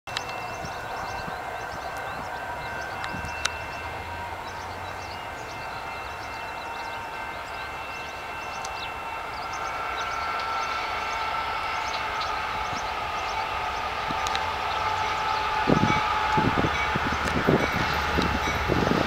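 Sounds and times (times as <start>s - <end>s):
freight train hum and rail noise: 0.1s - 19.0s.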